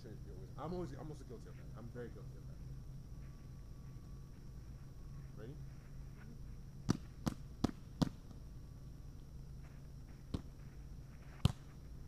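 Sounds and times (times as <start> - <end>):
volleyball being hit: 6.8 - 8.4.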